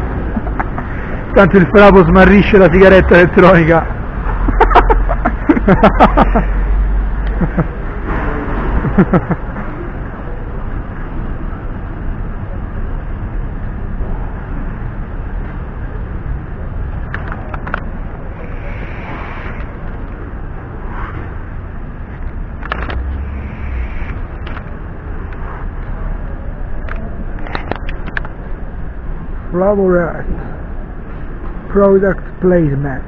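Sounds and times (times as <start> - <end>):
city street traffic: 0.0 - 33.0
sharp clicks: 22.2 - 25.9.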